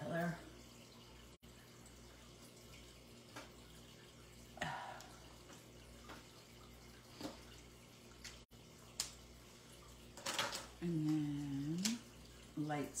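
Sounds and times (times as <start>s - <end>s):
quiet room hum: 0.0s - 13.0s.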